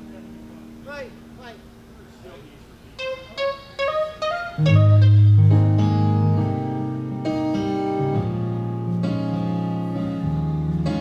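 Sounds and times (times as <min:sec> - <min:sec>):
keyboard chords: 0:00.0 - 0:11.0
electric guitar: 0:03.0 - 0:11.0
sustained bass notes: 0:03.0 - 0:11.0.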